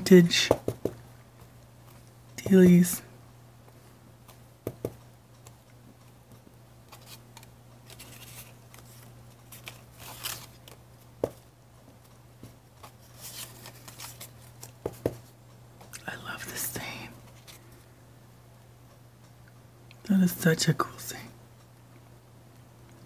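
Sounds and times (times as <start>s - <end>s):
faint low hum: 0.0s - 23.0s
paper tags rustling: 6.9s - 10.8s, 12.8s - 14.8s.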